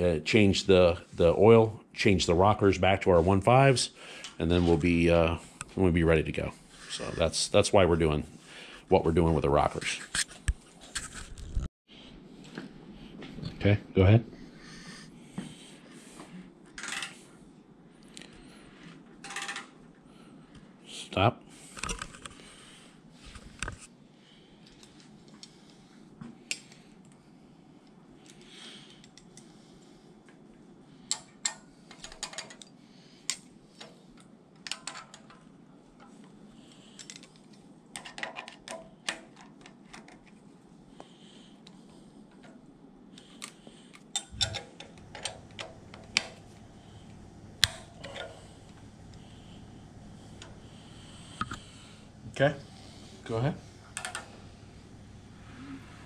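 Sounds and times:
metallic clicks of hand tools: 0:44.2 - 0:46.3.

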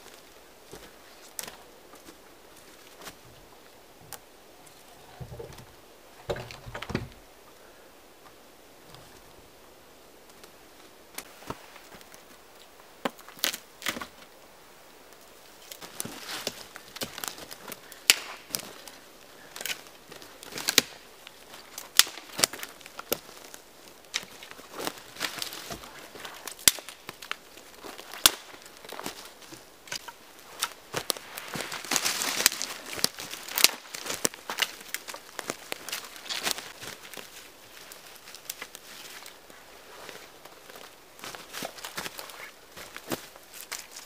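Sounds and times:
footsteps through dry forest litter: 0:00.0 - 0:03.8, 0:10.3 - 0:12.6, 0:15.3 - 0:44.0
dry twigs snapping: 0:15.6 - 0:39.4, 0:40.1 - 0:44.0
rustling brush: 0:27.7 - 0:34.6, 0:35.2 - 0:44.0.

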